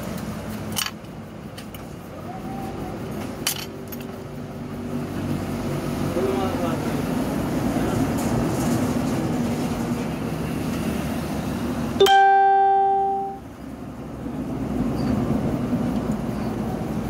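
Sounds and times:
steady background noise: 0.0 - 17.0
plucked string note: 12.0 - 13.4.

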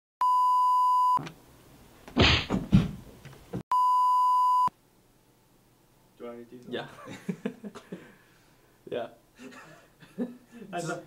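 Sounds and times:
television test tone beep: 0.2 - 1.2, 3.7 - 4.7.

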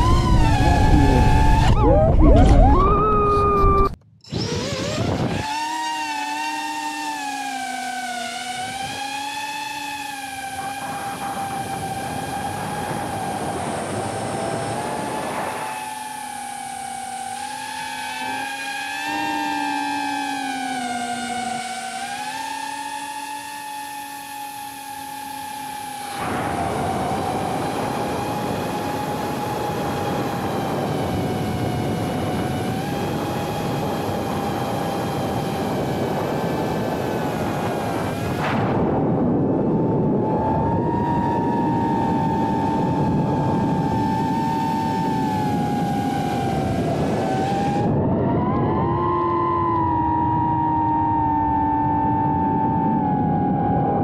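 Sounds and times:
drone motors and propellers whining: 0.0 - 54.0.

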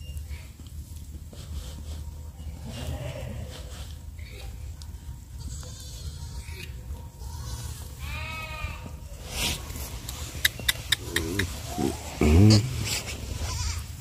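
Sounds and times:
goat bleating: 5.4 - 9.0, 11.0 - 14.0.

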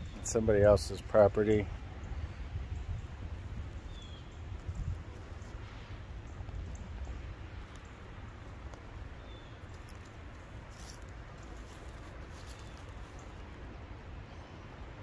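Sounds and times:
wind rumbling on microphone: 0.0 - 15.0
footsteps in dry leaves: 9.4 - 13.4.

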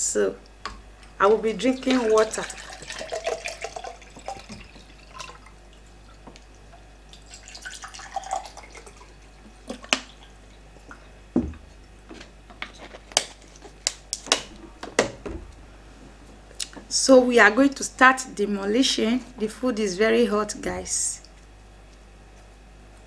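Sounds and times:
water pouring into glass mug: 1.7 - 6.2, 7.1 - 10.3.

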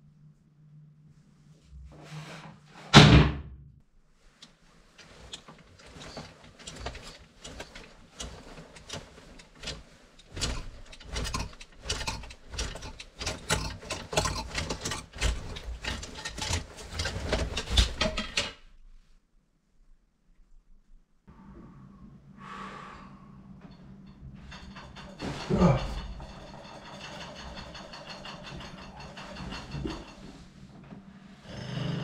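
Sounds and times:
rapid clicking and rattling: 5.0 - 18.6, 23.7 - 30.7.

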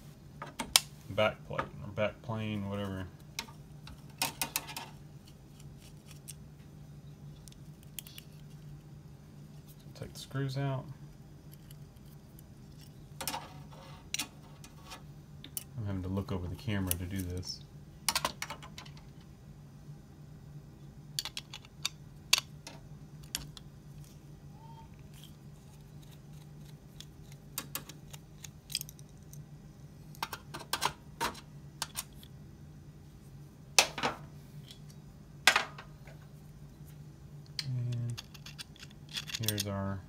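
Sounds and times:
faint low hum: 0.0 - 40.0
clicks of metal parts handled: 27.0 - 29.4, 37.5 - 39.8.

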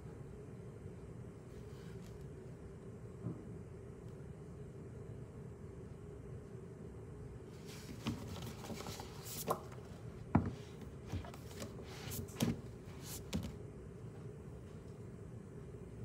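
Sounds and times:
paper pages rustling: 7.6 - 9.8.

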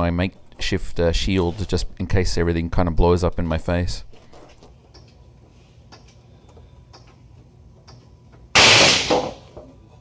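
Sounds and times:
loud bang of material failing: 8.6 - 9.5.

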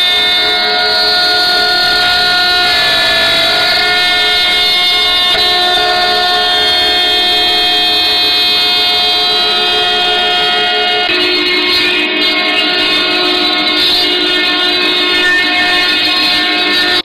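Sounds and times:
router bits carving wood: 0.0 - 9.7
machine spindles whining: 0.0 - 17.0.

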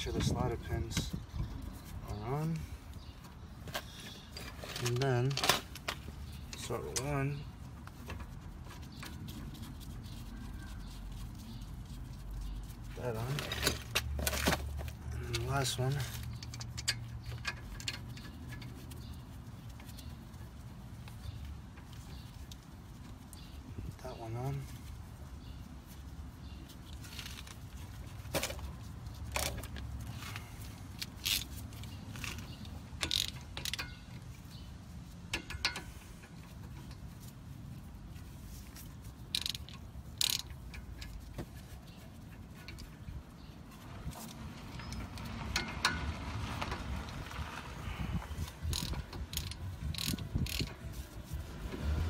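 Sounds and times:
socket ratchet clicking: 33.0 - 34.0, 39.4 - 40.9, 48.6 - 50.8.

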